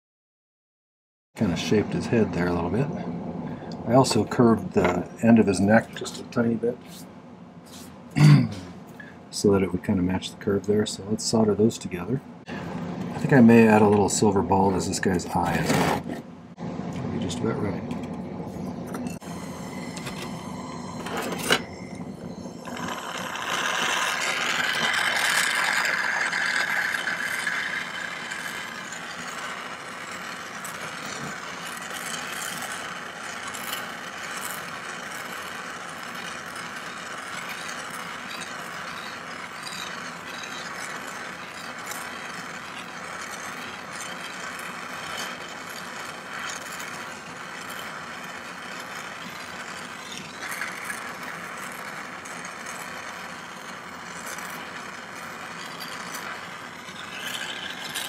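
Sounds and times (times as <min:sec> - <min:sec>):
torch flame hissing: 0:18.4 - 0:58.0.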